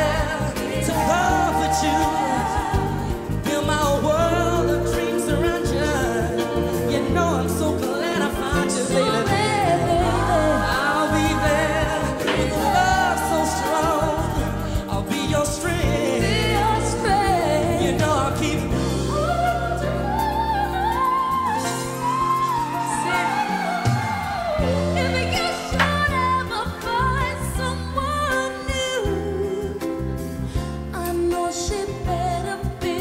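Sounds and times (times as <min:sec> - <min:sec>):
sustained bass line: 0:00.0 - 0:22.7
wavering sung vocal: 0:00.0 - 0:29.9.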